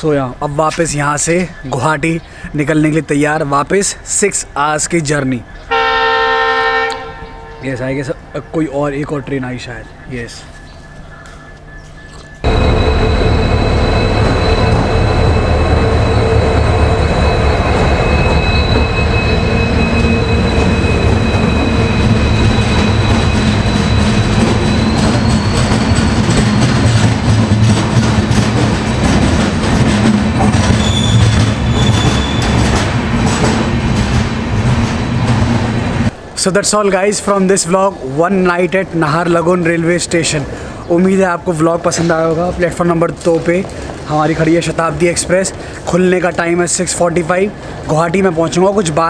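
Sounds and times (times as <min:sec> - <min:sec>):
high wheel squeals: 0:11.9 - 0:27.4, 0:30.2 - 0:32.8, 0:33.6 - 0:36.3
train wheels rumbling on rails: 0:12.3 - 0:37.9, 0:38.5 - 0:49.0.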